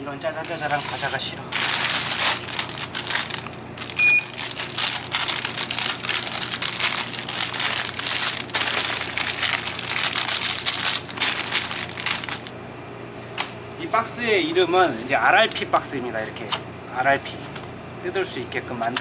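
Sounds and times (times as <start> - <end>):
plastic wrappers crinkling: 1.0 - 12.5
short electronic beep: 4.0 - 4.3.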